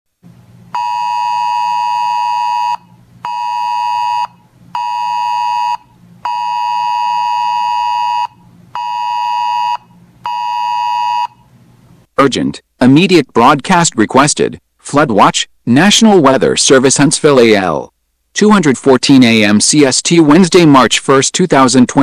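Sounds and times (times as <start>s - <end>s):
weather radio alarm beeps: 0.8s - 11.4s.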